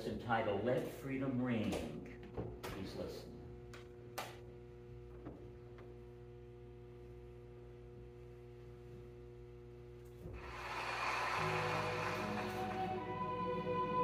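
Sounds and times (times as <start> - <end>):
low electrical hum: 0.0 - 14.0
music: 10.4 - 14.0.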